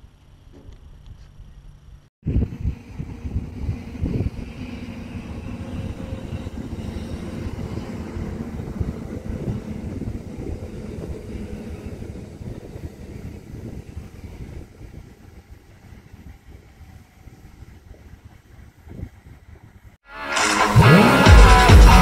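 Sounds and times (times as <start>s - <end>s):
low rumble: 0.7s - 15.2s.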